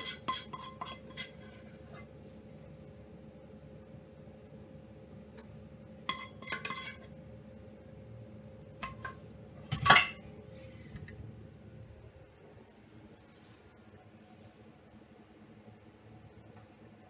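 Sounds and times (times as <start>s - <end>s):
cookware clatter: 0.0s - 2.0s, 6.1s - 7.1s, 8.8s - 10.3s
metal spoon scraping saucepan: 0.0s - 2.1s, 6.1s - 7.1s, 8.8s - 10.2s.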